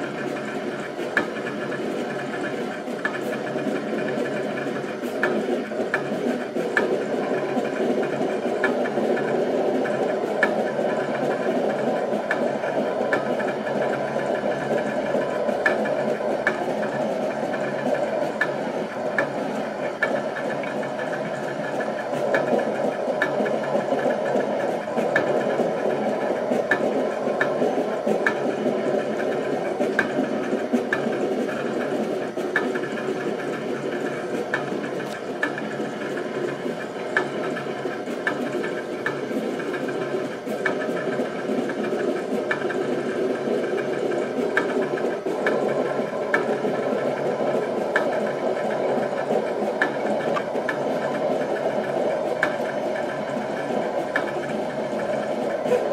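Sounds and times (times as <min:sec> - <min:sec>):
plotter motors whirring: 0:00.0 - 0:55.9.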